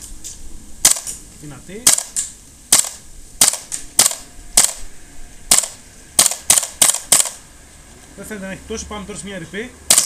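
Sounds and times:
airsoft rifle shots: 0.8s - 1.2s, 1.8s - 4.8s, 5.5s - 7.4s.

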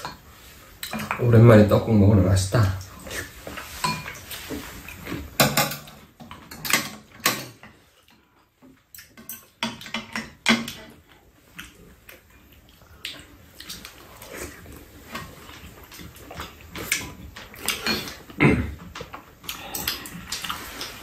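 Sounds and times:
eating noises: 10.7s - 21.0s
utensils clinking against bowls: 16.7s - 21.0s.

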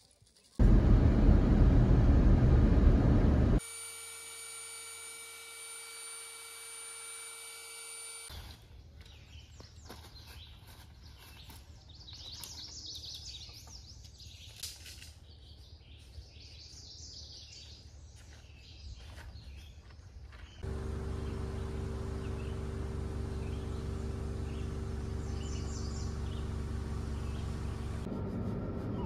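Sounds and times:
low outdoor hum: 0.0s - 29.0s
steady multi-tone whine: 0.6s - 8.3s
small birds chirping: 8.7s - 28.1s.

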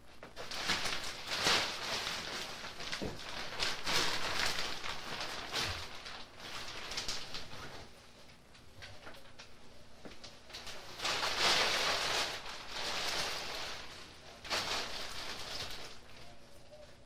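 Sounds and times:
close rustling and crackling: 0.0s - 17.0s.

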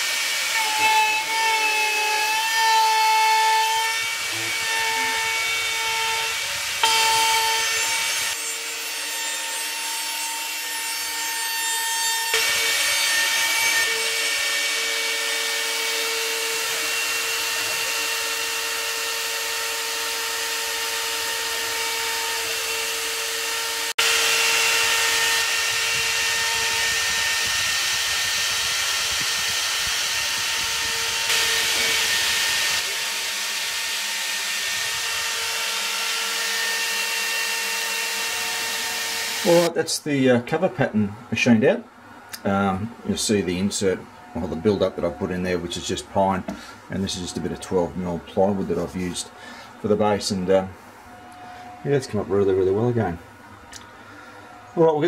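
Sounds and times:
router spindle whine: 12.3s - 39.7s.

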